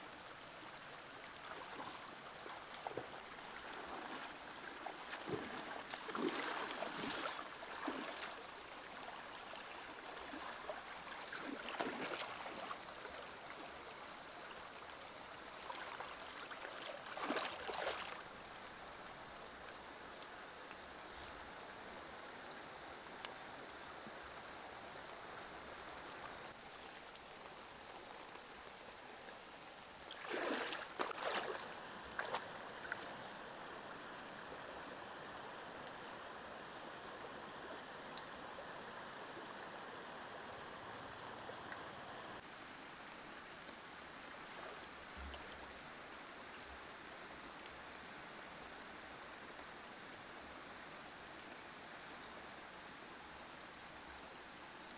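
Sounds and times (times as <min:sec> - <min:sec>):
stream water flowing: 0:00.0 - 0:54.9
splashing and rustling: 0:01.4 - 0:08.4, 0:10.2 - 0:12.8, 0:15.6 - 0:18.4, 0:30.1 - 0:33.1.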